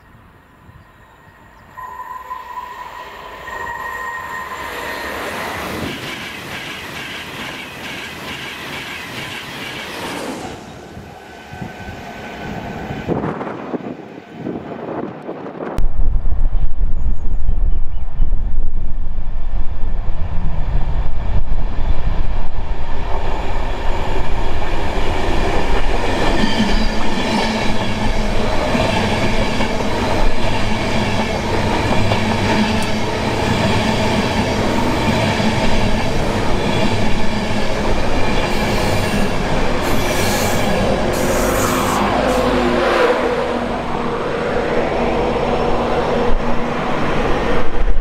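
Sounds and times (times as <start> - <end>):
train wheels clattering on rails: 4.8 - 10.3.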